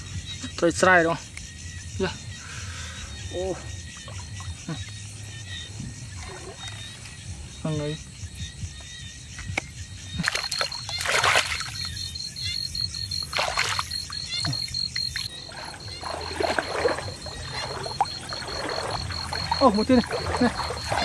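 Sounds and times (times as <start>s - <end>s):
water splashing and sloshing: 3.7s - 7.4s, 10.2s - 21.0s
steady high-pitched tone: 11.8s - 21.0s.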